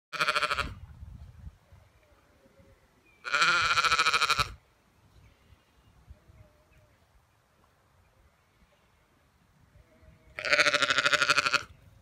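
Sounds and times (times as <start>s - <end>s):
sheep bleating: 0.1s - 0.8s, 3.2s - 4.6s, 9.8s - 11.7s.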